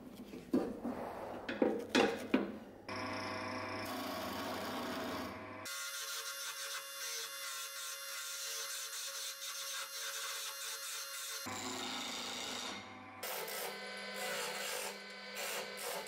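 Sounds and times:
wood lathe motor hum: 0:02.9 - 0:06.1, 0:11.4 - 0:16.0.

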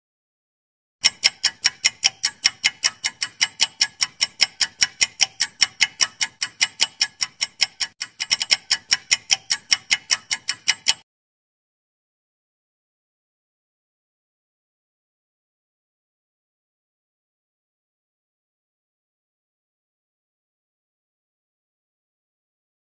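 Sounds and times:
clock ticking fast: 0:01.0 - 0:11.0.

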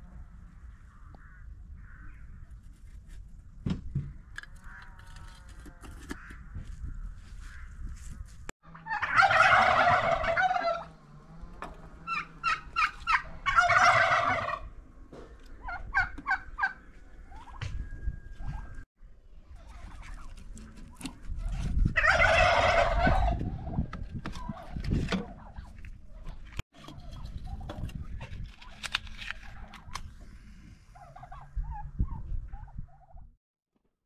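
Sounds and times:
turkey gobbling: 0:08.6 - 0:10.9, 0:12.0 - 0:14.7, 0:15.6 - 0:17.7, 0:22.0 - 0:23.7, 0:31.0 - 0:33.2.

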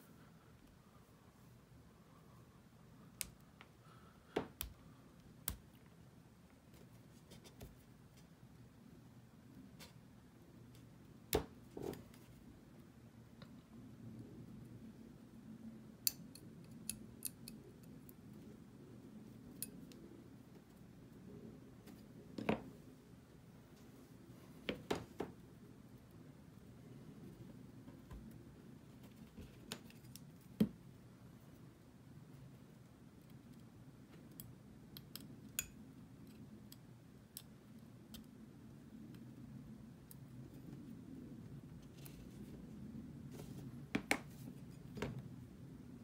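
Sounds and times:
low room hum: 0:00.0 - 0:46.0
steel pick clicking on metal: 0:16.0 - 0:17.9.

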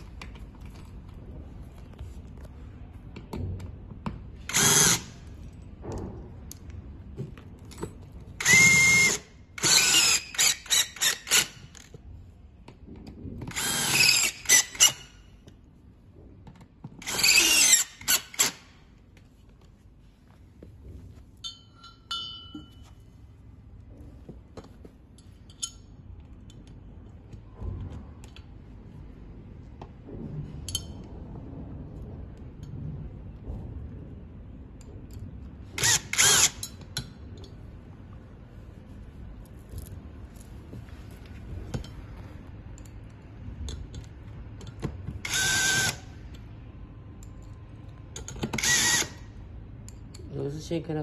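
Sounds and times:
power drill whining: 0:04.5 - 0:05.1, 0:08.4 - 0:11.9, 0:13.5 - 0:15.1, 0:17.0 - 0:18.6, 0:35.8 - 0:36.6, 0:45.2 - 0:46.1, 0:48.6 - 0:49.2.

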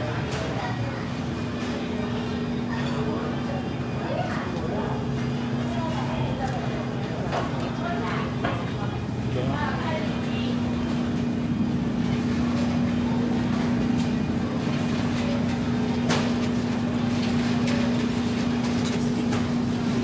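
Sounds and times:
shopping cart rolling: 0:11.8 - 0:20.0.

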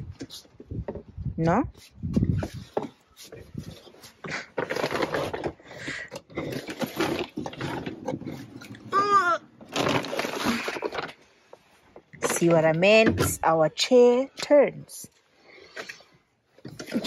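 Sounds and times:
rustles and knocks: 0:01.8 - 0:08.9.

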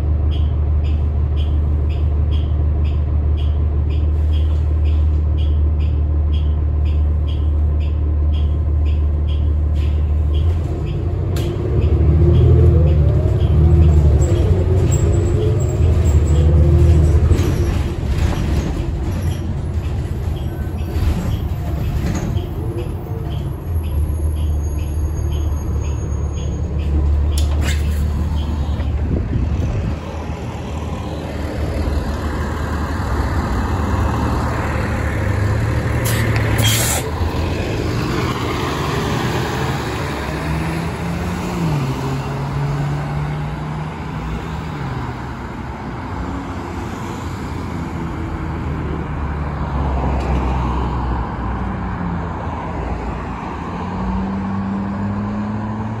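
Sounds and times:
road noise: 0:00.0 - 0:56.0
bus engine revving: 0:04.1 - 0:56.0
short air hiss: 0:36.0 - 0:37.1.

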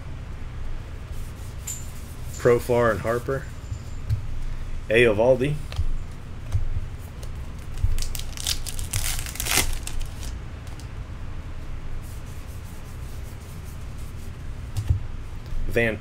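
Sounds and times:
cards rubbing and flicking: 0:06.5 - 0:10.9.

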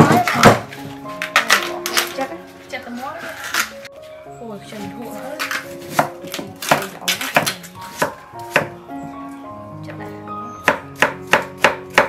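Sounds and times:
cleaver chopping on wooden board: 0:05.9 - 0:08.8, 0:10.6 - 0:12.0.

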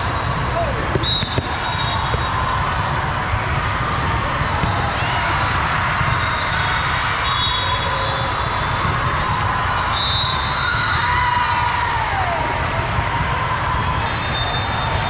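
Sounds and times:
balls bouncing on hard floor: 0:00.4 - 0:02.3, 0:08.8 - 0:09.4.

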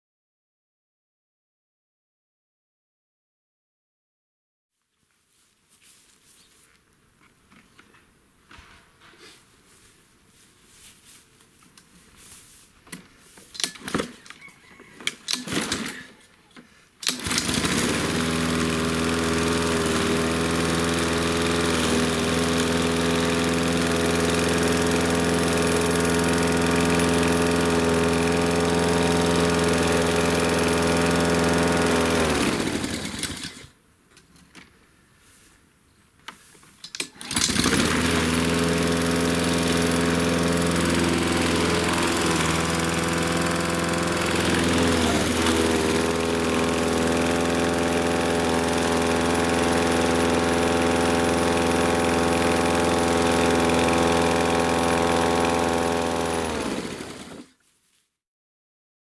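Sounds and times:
lawn mower engine running: 0:13.3 - 0:16.2, 0:17.0 - 0:33.7, 0:36.8 - 0:57.6.

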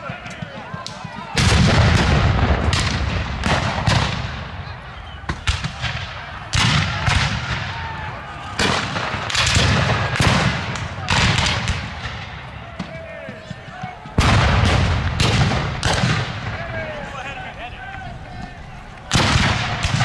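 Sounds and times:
black-powder gunshots echoing: 0:01.4 - 0:07.9, 0:08.5 - 0:12.4, 0:14.2 - 0:17.0, 0:19.1 - 0:20.0.

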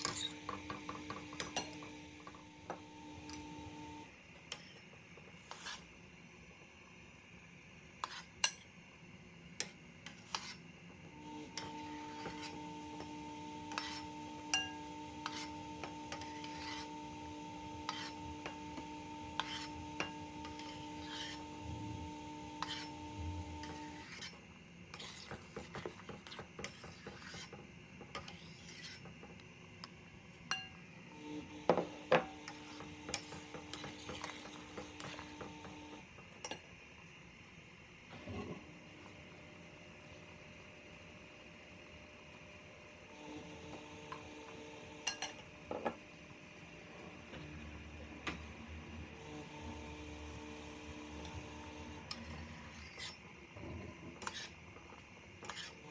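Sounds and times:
metal spoon scraping a pot: 0:00.0 - 0:01.9, 0:04.5 - 0:04.8, 0:05.4 - 0:05.9, 0:08.0 - 0:08.6, 0:09.6 - 0:10.6, 0:11.5 - 0:17.2, 0:17.8 - 0:29.1, 0:32.2 - 0:35.8, 0:52.0 - 0:53.2, 0:54.2 - 0:54.6, 0:55.4 - 0:55.9
steady hum: 0:10.6 - 0:25.8.

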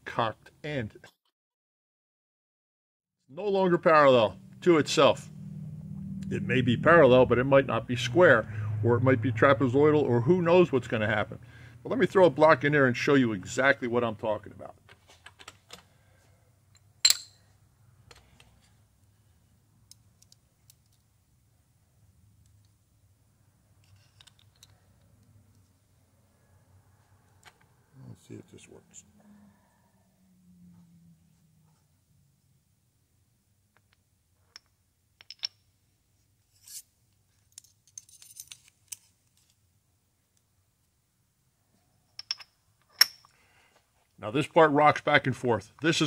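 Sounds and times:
faint sharp clicks of small parts: 0:19.9 - 0:21.1.

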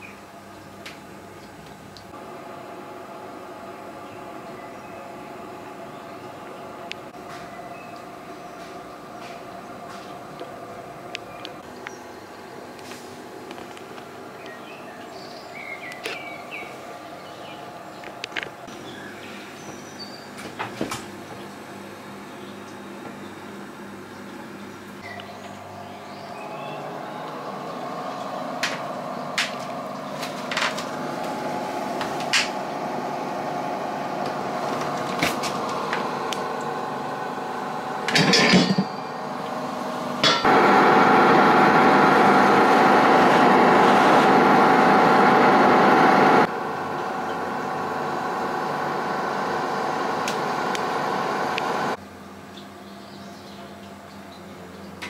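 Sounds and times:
fridge humming: 0:13.3 - 0:52.0.

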